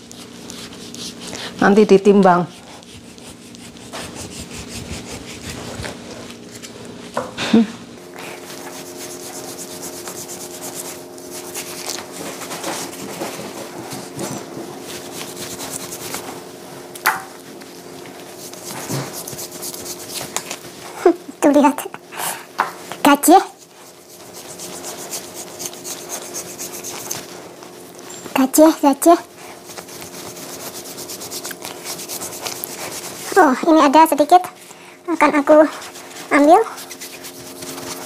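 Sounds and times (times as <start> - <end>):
steady hum: 0.0 - 38.0
knife scraping meat on board: 2.5 - 5.8, 23.9 - 27.3.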